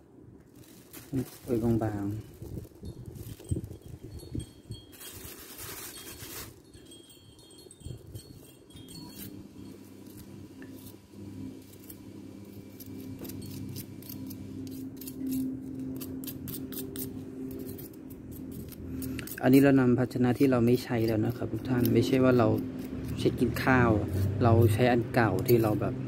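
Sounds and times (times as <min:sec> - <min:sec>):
low steady hum: 0:00.0 - 0:26.0
plastic bag crinkling: 0:00.4 - 0:07.3
spoon scraping through compost: 0:00.6 - 0:07.1, 0:08.2 - 0:25.9
spoon and fork clinking: 0:25.2 - 0:25.9.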